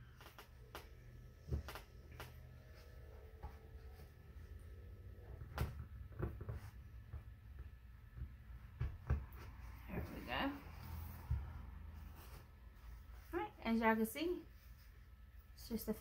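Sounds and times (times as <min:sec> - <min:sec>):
faint light taps and knocks: 0:05.4 - 0:09.6.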